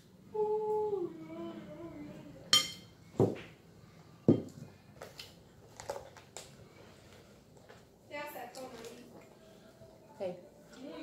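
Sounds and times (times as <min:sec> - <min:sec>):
spoon clinking on crockery: 0:02.5 - 0:02.9.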